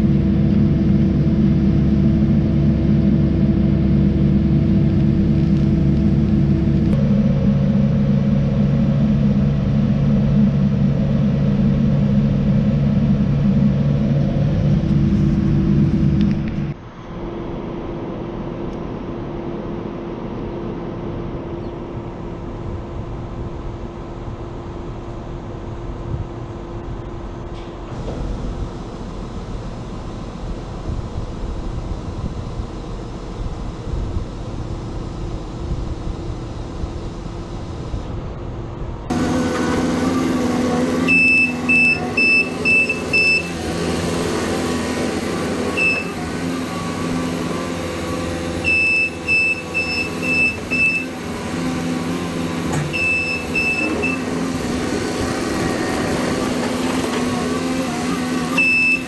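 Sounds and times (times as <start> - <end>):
diesel engines rumbling: 0.0 - 59.0
reversing alarm beeps: 41.1 - 43.6, 45.7 - 46.2, 48.6 - 51.2, 52.9 - 54.3, 58.6 - 59.0.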